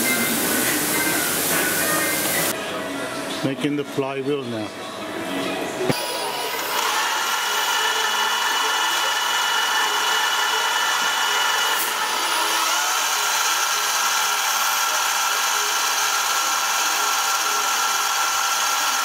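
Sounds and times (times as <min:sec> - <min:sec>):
metal lathe whining: 0:05.9 - 0:19.0.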